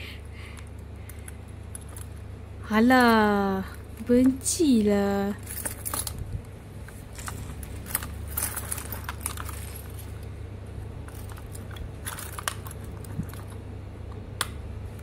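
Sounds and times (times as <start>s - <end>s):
low steady hum: 0.0s - 15.0s
keys jangling: 7.2s - 10.1s, 11.1s - 13.6s.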